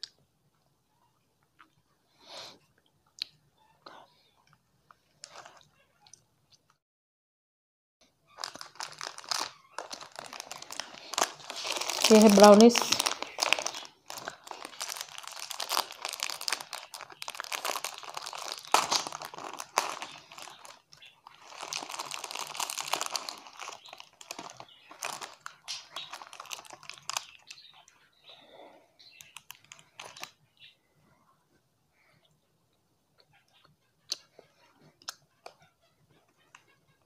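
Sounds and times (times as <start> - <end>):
plastic wrapper crinkling: 8.3 - 27.8, 29.0 - 30.4.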